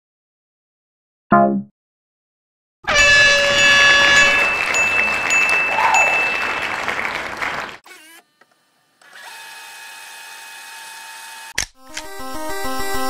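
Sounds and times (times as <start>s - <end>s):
air horn blast: 2.9s - 7.7s.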